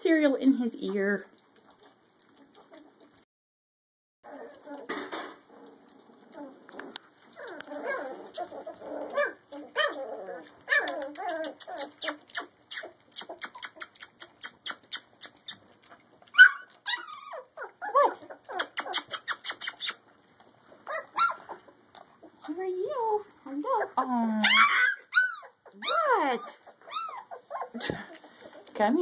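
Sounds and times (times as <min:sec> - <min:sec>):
puppies whimpering and yipping: 0:01.3 - 0:03.2, 0:04.2 - 0:22.6, 0:23.6 - 0:29.0
puppies whining: 0:01.3 - 0:03.2, 0:04.2 - 0:29.0.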